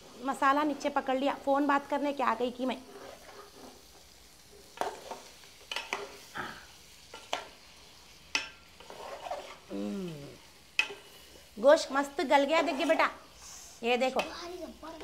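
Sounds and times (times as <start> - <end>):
faint sizzle: 0.0 - 15.0
ladle scraping a pot: 2.8 - 3.9, 8.8 - 9.7.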